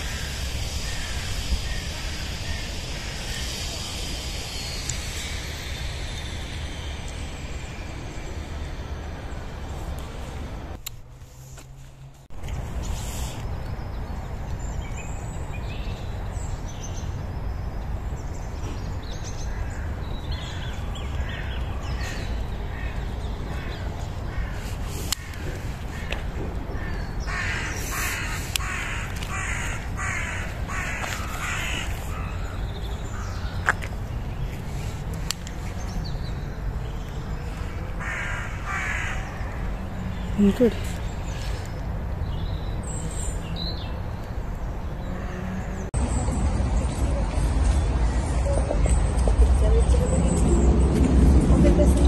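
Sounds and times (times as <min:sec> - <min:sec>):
bird harsh calls: 0:00.0 - 0:07.0, 0:19.2 - 0:35.0, 0:37.4 - 0:41.8
low rumble: 0:00.0 - 0:10.8.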